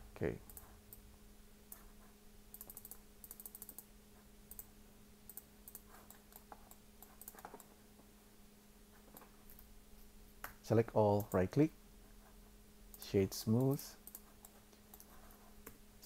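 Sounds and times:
faint low hum: 0.0 - 16.0
computer mouse and keys clicking: 0.5 - 1.1, 1.7 - 3.9, 4.5 - 4.7, 5.3 - 7.8, 9.0 - 9.7, 10.4 - 11.4, 12.9 - 15.8.

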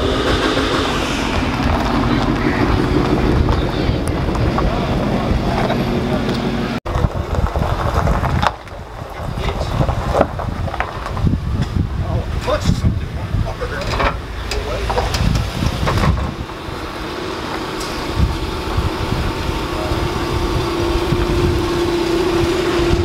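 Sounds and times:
background voices: 0.0 - 7.9
wind noise on microphone: 0.0 - 17.1, 17.8 - 23.0
car engine and exhaust running: 0.0 - 23.0.

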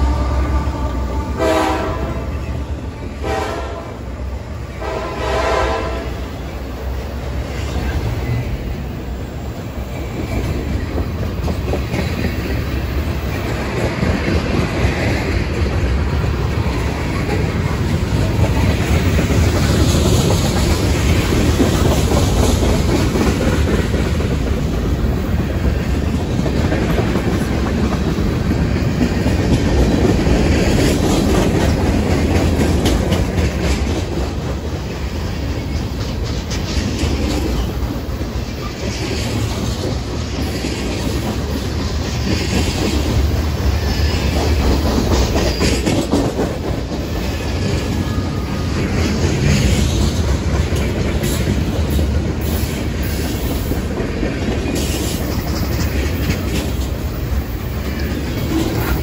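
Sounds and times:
freight train wheels clacking on rails: 0.0 - 59.0.

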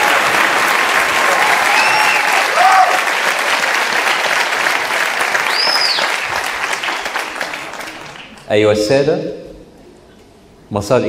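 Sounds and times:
audience applauding: 0.0 - 8.5
person whistling: 5.5 - 6.1.

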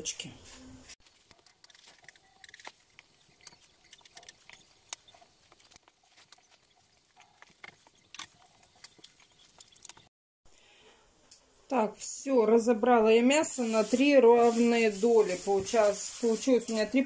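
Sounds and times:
plastic bags crinkling: 1.0 - 6.5.

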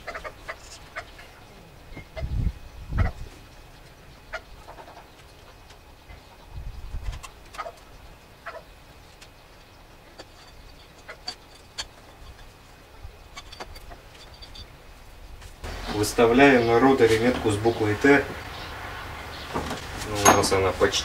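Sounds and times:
metal engine parts clicking: 10.1 - 12.6, 13.2 - 14.7.

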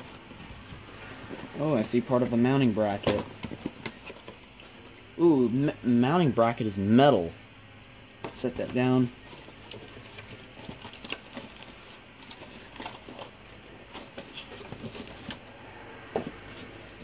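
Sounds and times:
packaging rustling: 9.2 - 15.6.

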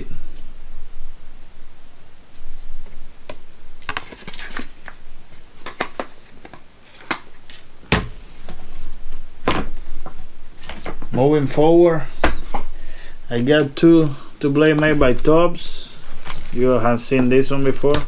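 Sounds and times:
metallic clinks and knocks: 3.8 - 4.9
heavy thump on table: 7.9 - 8.2.

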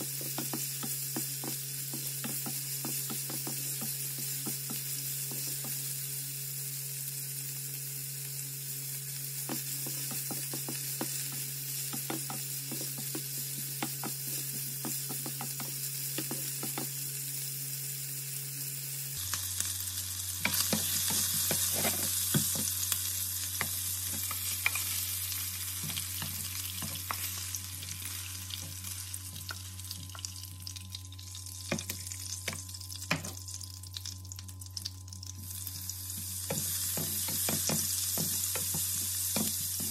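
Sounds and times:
chicken sizzling in oil: 0.0 - 39.9
wooden spatula scraping a pan: 21.1 - 22.2.

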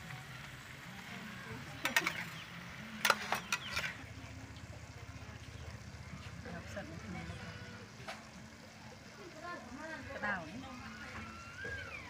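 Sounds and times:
metal spatula scraping wok: 1.7 - 4.2.

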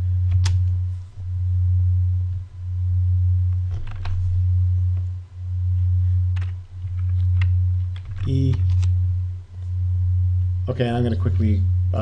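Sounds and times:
loud low hum: 0.0 - 12.0.

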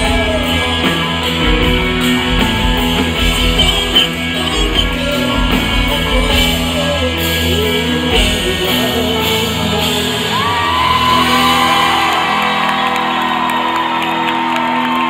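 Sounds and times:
crowd shouting and whooping: 0.0 - 5.2, 10.2 - 15.0
live rock band playing: 0.0 - 15.0.

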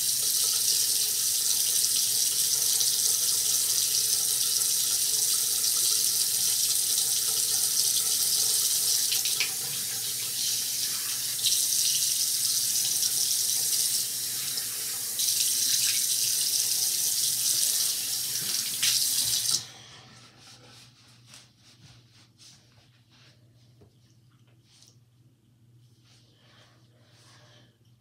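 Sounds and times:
sink tap running: 0.0 - 19.6.

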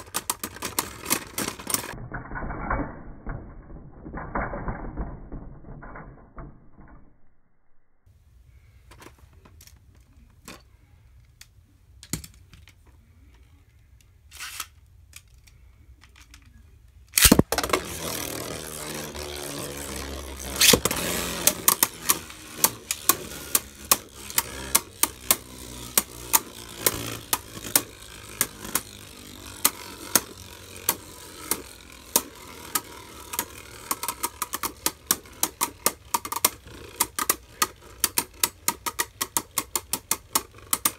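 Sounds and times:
sharp plastic clatter: 0.0 - 2.8, 17.1 - 40.9
spinning tops clacking together: 17.2 - 40.9
spinning tops whirring: 17.2 - 40.9
plastic clicks: 29.7 - 40.9.

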